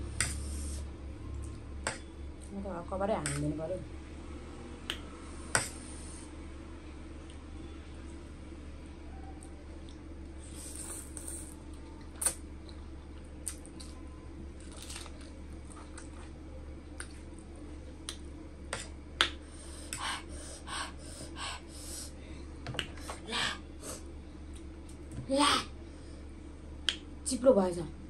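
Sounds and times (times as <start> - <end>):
wet chewing and mouth noises: 9.4 - 19.3.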